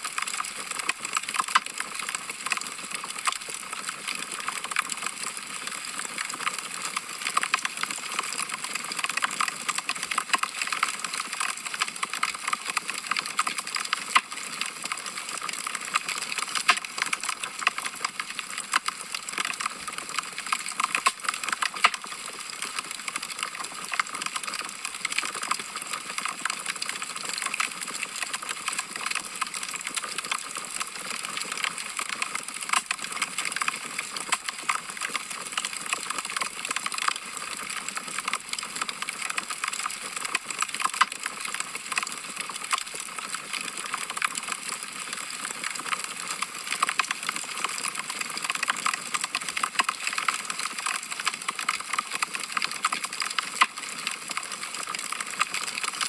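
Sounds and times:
logs crackling in fireplace: 14.9 - 22.6.

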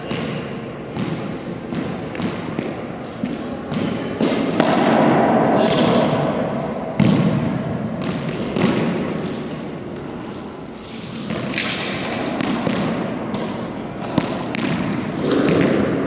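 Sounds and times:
racquetball smacks echoing: 0.1 - 6.2, 11.3 - 16.0.

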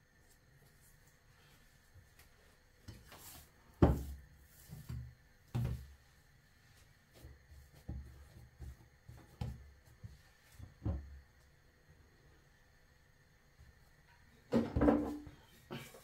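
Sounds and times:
dough knocks and pats: 2.9 - 6.0
dough thudding on countertop: 3.8 - 4.2.

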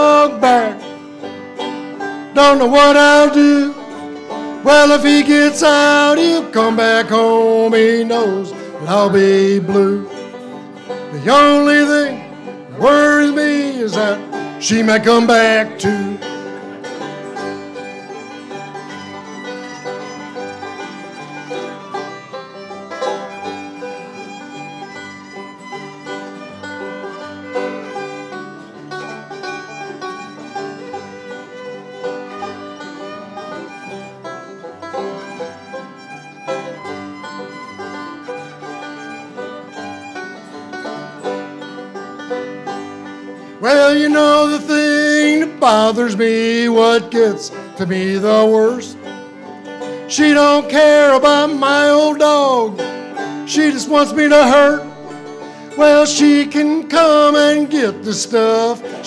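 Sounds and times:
man singing: 0.0 - 0.9, 2.3 - 4.0, 4.6 - 10.2, 11.1 - 16.3, 43.6 - 49.1, 50.1 - 52.9, 53.5 - 55.1, 55.7 - 59.0
acoustic country band playing: 0.0 - 59.0.

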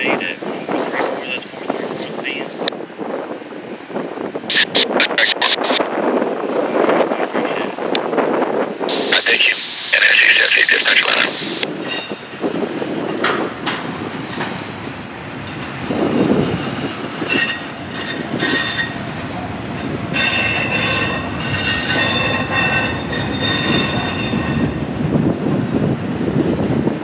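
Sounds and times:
train cars rolling on steel wheels: 11.7 - 27.0
high-pitched wheel squeal: 20.2 - 24.7.

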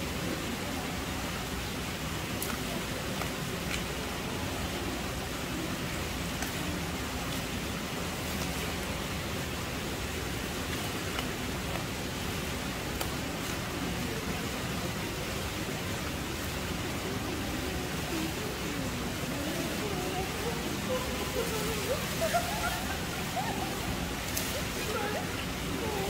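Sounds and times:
steady background hiss: 0.0 - 26.0
faint sharp clicks: 6.3 - 6.7, 12.9 - 13.6.

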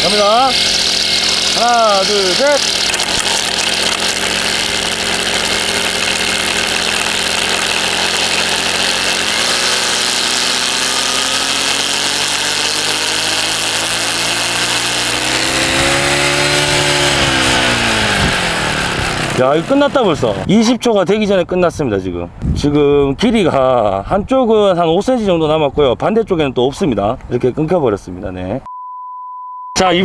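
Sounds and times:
trimmer line hissing against stone: 0.0 - 19.4
brush cutter engine running: 0.0 - 20.5.

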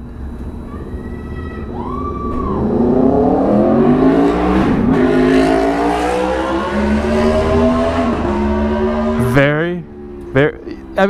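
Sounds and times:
motorcycle engine revving loudly: 2.6 - 10.5.

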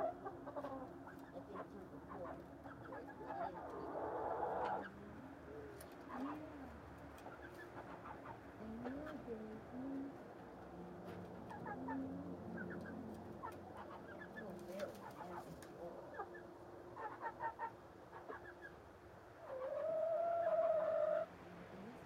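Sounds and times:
chickens clucking: 0.0 - 22.0
chicken long drawn-out call: 3.4 - 4.9, 19.4 - 21.4.

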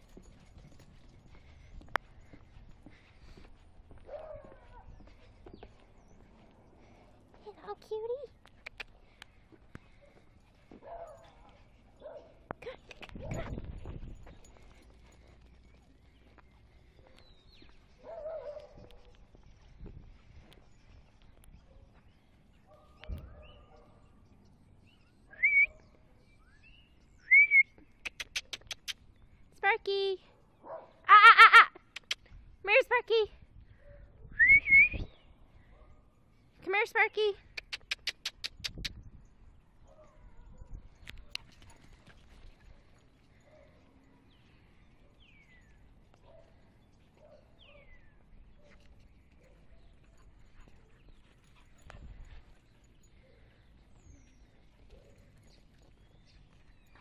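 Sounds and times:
sharp tongue clicks: 8.4 - 9.3, 12.6 - 13.4, 27.9 - 29.1, 31.8 - 32.3, 37.5 - 39.0
person whistling: 34.4 - 35.1.

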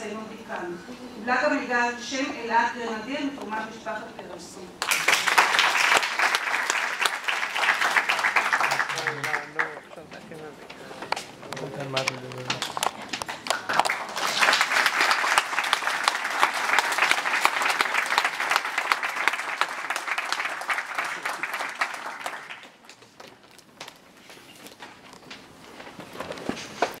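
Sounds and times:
audience applauding: 4.8 - 10.0, 11.9 - 23.2.

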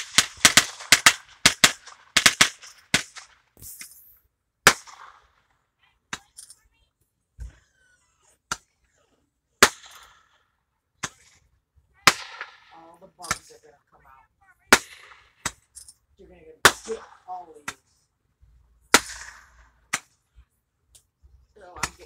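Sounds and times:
fireworks bangs: 0.0 - 3.9, 12.0 - 15.6.

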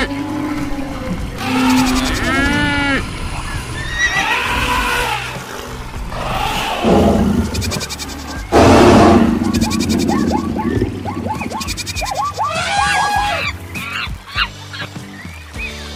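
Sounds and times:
loud harsh animal call: 0.0 - 14.5
short falling chirp-like calls: 9.4 - 14.1.

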